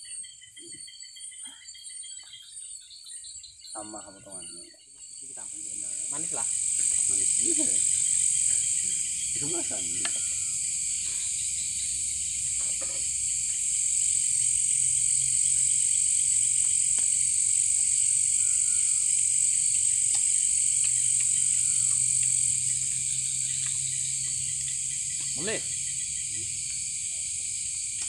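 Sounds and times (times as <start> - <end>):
crickets droning: 0.0 - 28.0
short falling calls: 17.9 - 20.1.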